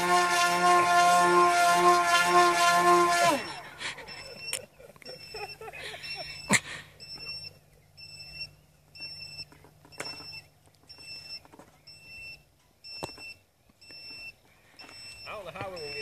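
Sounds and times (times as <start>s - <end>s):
electronic beeper beeping: 4.0s - 16.0s.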